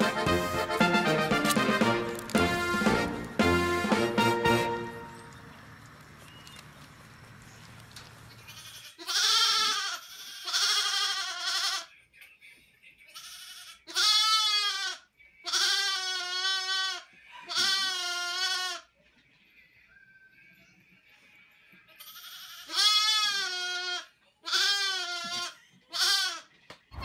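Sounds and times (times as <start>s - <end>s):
lamb bleating: 8.4s - 11.9s, 13.1s - 18.9s, 22.0s - 26.5s.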